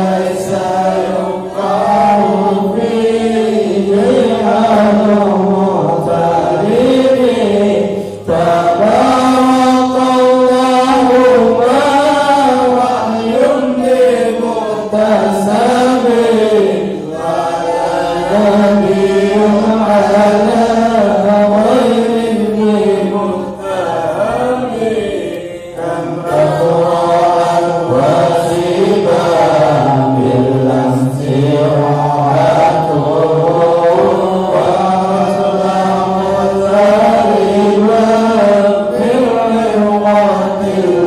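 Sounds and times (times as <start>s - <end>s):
voices chanting melodically: 0.0s - 41.0s.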